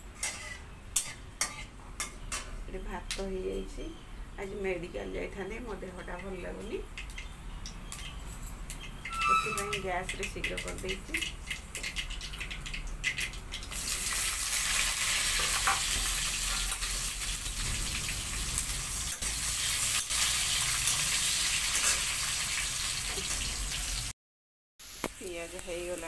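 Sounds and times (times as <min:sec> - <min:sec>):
onions sizzling in hot oil: 0:09.0 - 0:24.1, 0:24.8 - 0:26.0.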